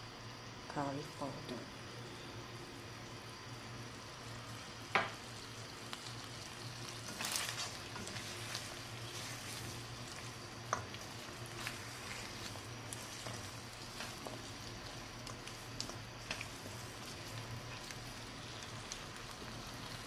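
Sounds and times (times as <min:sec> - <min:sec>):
chicken sizzling in oil: 0:01.6 - 0:20.0
spatula stirring and scraping pan: 0:05.0 - 0:20.0.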